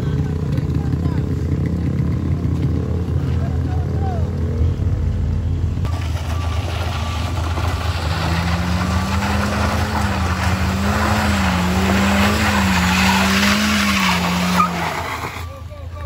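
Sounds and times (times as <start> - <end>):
car engine at high revs: 0.0 - 15.4
tyres on loose gravel: 5.8 - 16.0.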